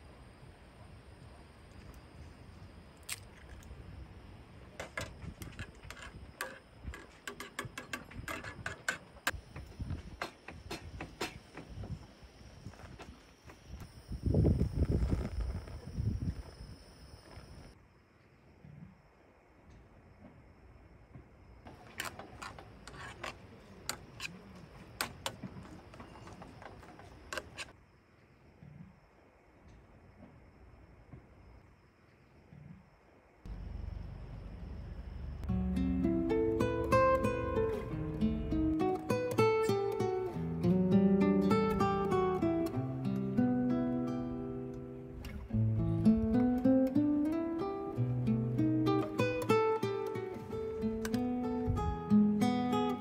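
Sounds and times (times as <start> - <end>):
low steady background noise: 0.0 - 53.0
utensil scraping a camping pot: 4.8 - 9.4, 21.7 - 27.8.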